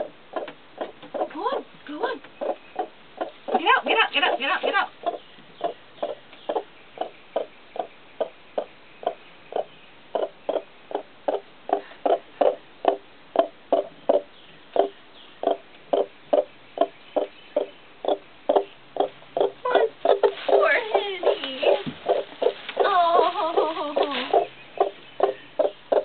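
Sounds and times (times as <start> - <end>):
hen clucking: 0.0 - 26.0.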